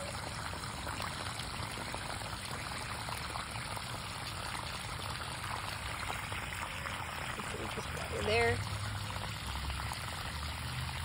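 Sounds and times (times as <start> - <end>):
hose water pouring onto gravel: 0.0 - 11.0.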